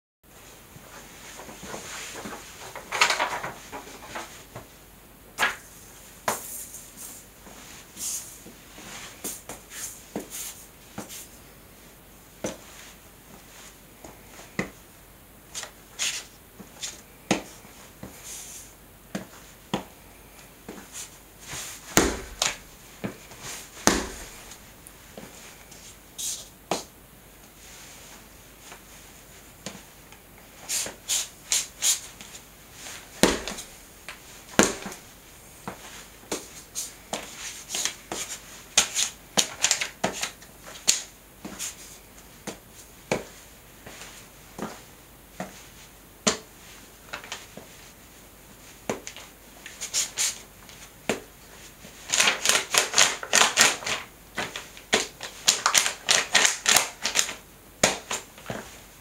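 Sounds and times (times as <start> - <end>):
shoes crinkling photo paper: 1.3 - 4.5, 20.9 - 24.6, 30.8 - 35.1, 35.8 - 42.0, 51.6 - 58.7
quick foot stamps: 20.7 - 25.3, 30.8 - 41.8.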